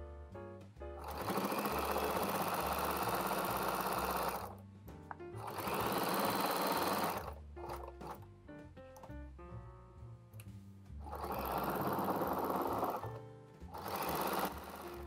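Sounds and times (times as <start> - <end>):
background piano music: 0.0 - 15.0
sewing machine stitching: 1.0 - 4.6, 5.4 - 8.2, 11.0 - 15.0.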